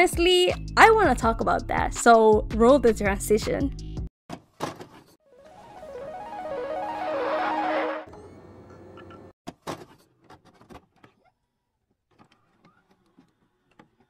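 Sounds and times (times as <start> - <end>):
music cue: 5.3 - 8.5
rising whoosh: 5.5 - 8.1.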